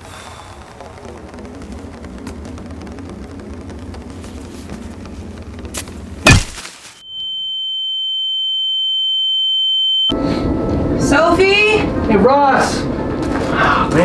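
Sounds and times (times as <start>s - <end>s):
high steady tone: 7.0s - 12.4s.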